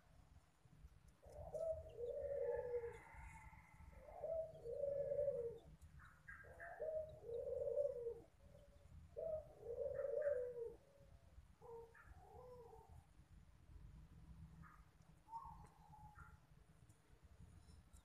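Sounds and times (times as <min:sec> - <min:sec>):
dove cooing: 0:01.2 - 0:11.0, 0:11.6 - 0:13.0.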